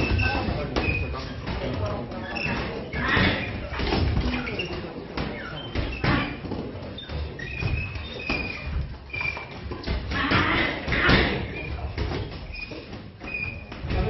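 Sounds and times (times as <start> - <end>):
short high squeaks: 5.4 - 9.6, 12.4 - 13.8.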